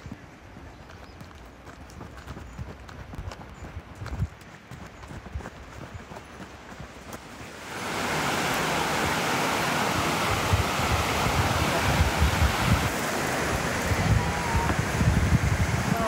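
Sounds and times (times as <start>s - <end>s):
river water pouring over rocks: 6.5s - 16.0s
waterfall rushing: 7.2s - 16.0s.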